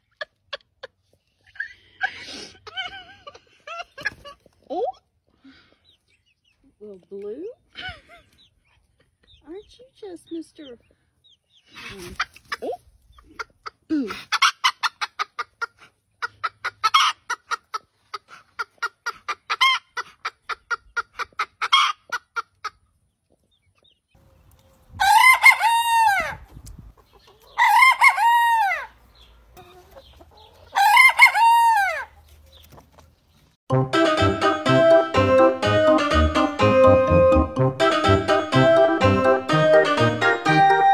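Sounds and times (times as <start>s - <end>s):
chicken clucking: 0.0s - 2.0s, 2.9s - 33.6s.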